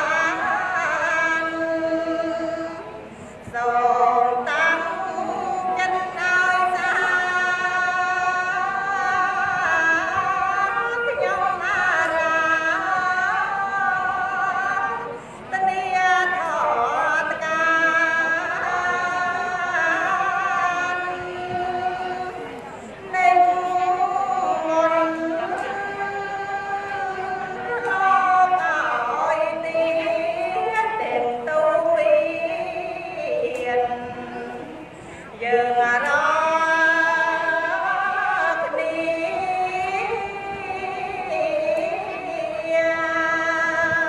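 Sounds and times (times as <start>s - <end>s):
woman chanting into a microphone: 0.0s - 44.0s.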